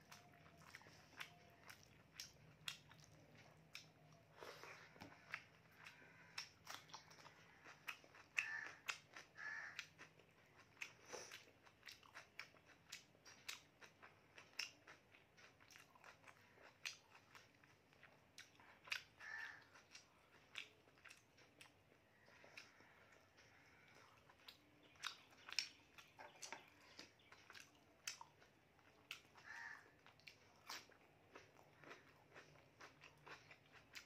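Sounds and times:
chewing and lip smacks: 0:00.0 - 0:34.0.

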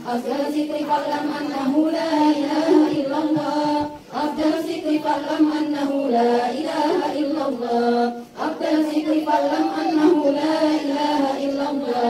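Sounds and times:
women chanting a prayer in unison: 0:00.0 - 0:12.0.

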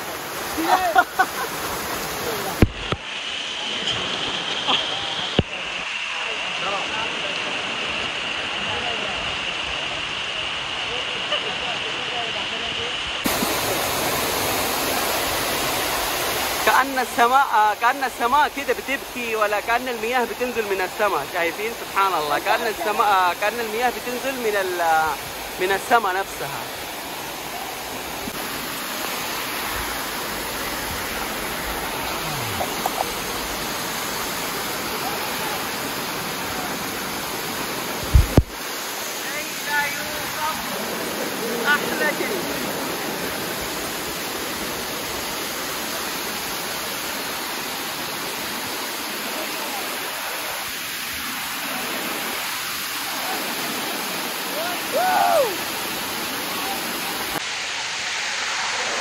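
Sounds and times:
waterfall rushing: 0:00.0 - 0:59.0
person calling: 0:31.9 - 0:33.3.

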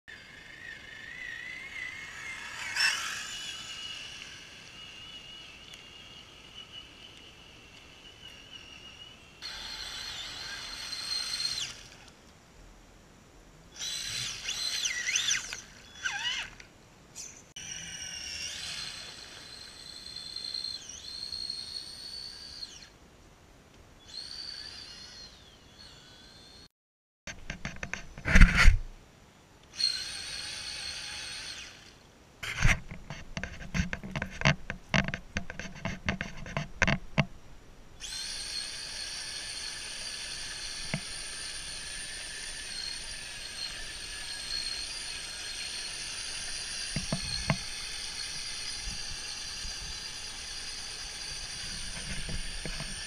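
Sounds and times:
electric motor whining: 0:00.1 - 0:12.1, 0:13.8 - 0:16.6, 0:17.6 - 0:23.0, 0:24.1 - 0:26.7, 0:29.8 - 0:32.8, 0:38.0 - 0:53.0.

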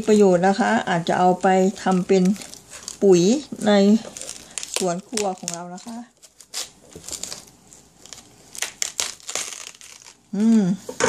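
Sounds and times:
person making voiced sound: 0:10.4 - 0:11.0.

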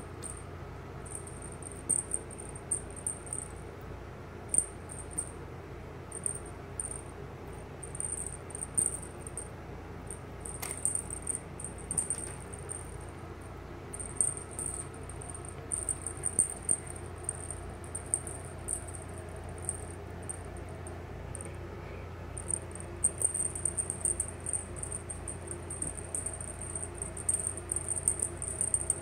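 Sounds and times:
steady low hum: 0:00.0 - 0:29.0
wand toy jingling: 0:01.1 - 0:03.5, 0:04.5 - 0:05.3, 0:07.8 - 0:09.5, 0:10.1 - 0:13.1, 0:14.0 - 0:21.5, 0:22.4 - 0:29.0.

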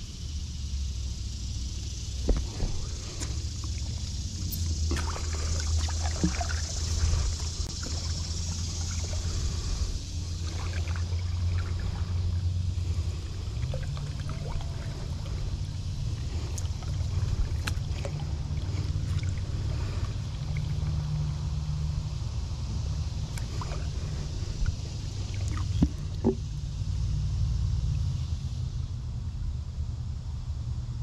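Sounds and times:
low hum: 0:00.0 - 0:31.0
paddle dipping and dripping in water: 0:02.3 - 0:21.1, 0:23.2 - 0:26.5.

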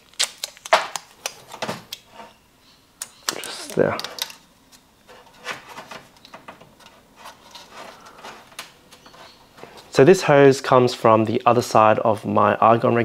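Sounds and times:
aluminium foil crinkling: 0:00.0 - 0:01.6, 0:03.3 - 0:10.0.

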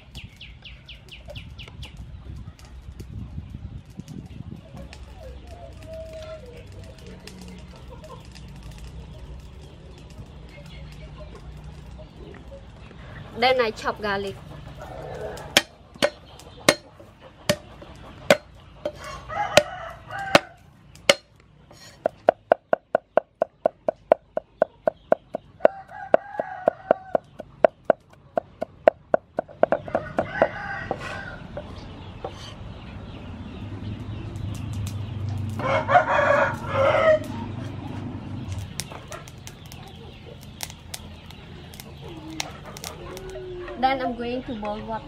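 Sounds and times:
chickens clucking: 0:01.1 - 0:45.0
rooster crowing: 0:14.8 - 0:15.7, 0:18.9 - 0:20.6, 0:25.6 - 0:27.3, 0:29.9 - 0:31.6, 0:35.6 - 0:37.5
cleaver chopping on wooden block: 0:15.5 - 0:16.9, 0:18.3 - 0:19.0, 0:21.1 - 0:21.3.

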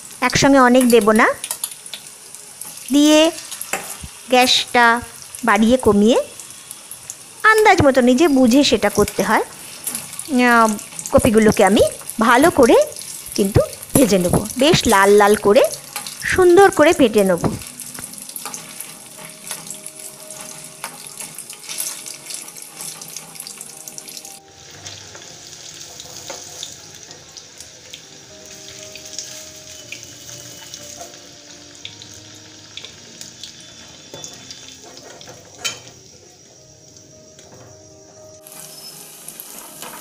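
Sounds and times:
food sizzling in hot oil: 0:00.0 - 0:40.0
soft background music: 0:00.0 - 0:40.0.

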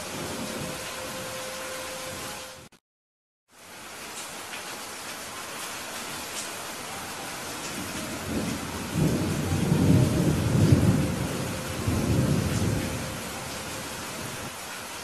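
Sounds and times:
thunder rumbling: 0:00.0 - 0:01.4, 0:07.4 - 0:14.5
steady rain: 0:00.0 - 0:02.8, 0:03.5 - 0:15.0.

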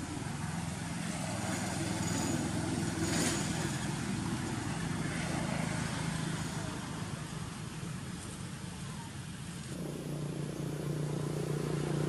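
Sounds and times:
motor engine humming: 0:09.8 - 0:12.0.

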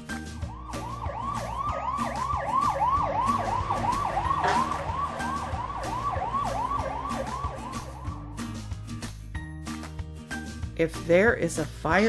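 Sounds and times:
siren yelping: 0:00.4 - 0:08.5.

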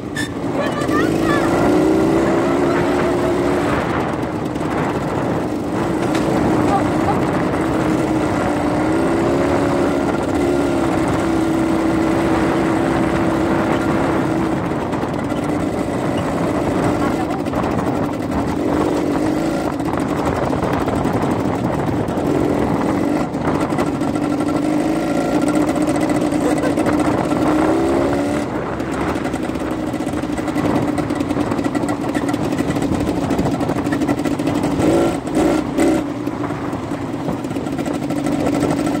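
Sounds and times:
heavy rushing noise: 0:00.0 - 0:39.0
quad bike engine running: 0:00.0 - 0:39.0.

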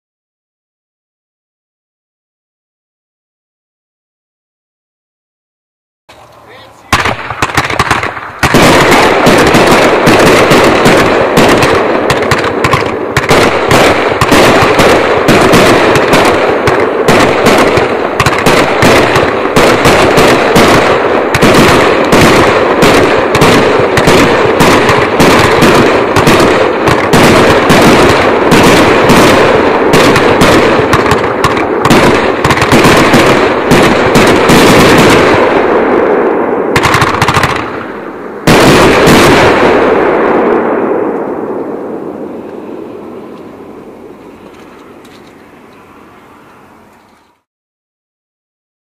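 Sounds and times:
fireworks barrage bangs: 0:06.1 - 0:45.2.

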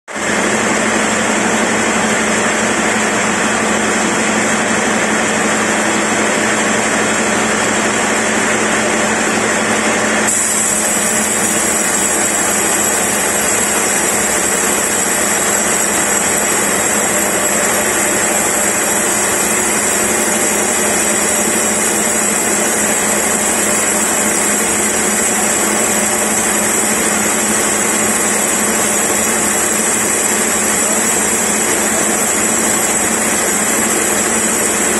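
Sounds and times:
motor hum: 0:00.2 - 0:34.9
band saw cutting log: 0:09.9 - 0:34.9.

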